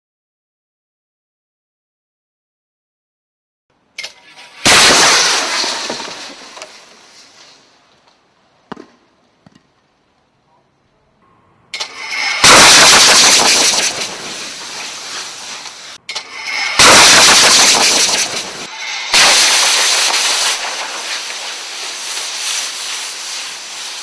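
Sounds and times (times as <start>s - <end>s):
high-pressure air blast: 4.1s - 7.2s, 11.8s - 24.0s.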